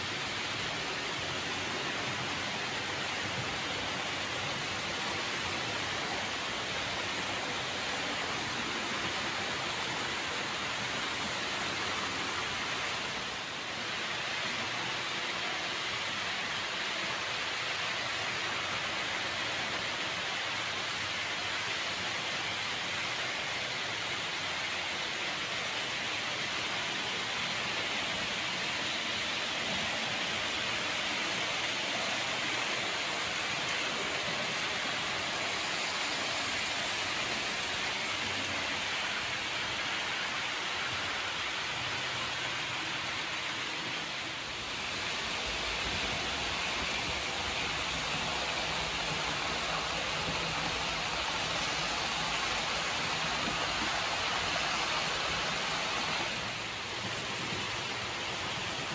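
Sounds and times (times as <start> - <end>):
model trains running on track: 37.2 - 58.9.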